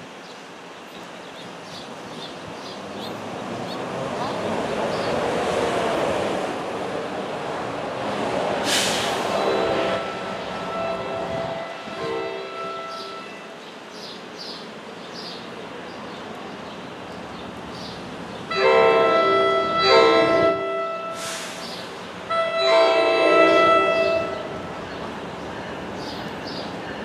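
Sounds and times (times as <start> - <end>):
train horn blasts: 9.2 - 13.6, 18.5 - 21.6, 22.3 - 24.6.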